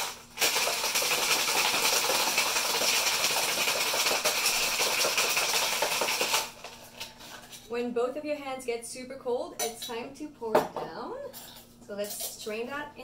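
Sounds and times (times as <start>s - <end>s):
ice rattling in cocktail shaker: 0.0s - 7.6s.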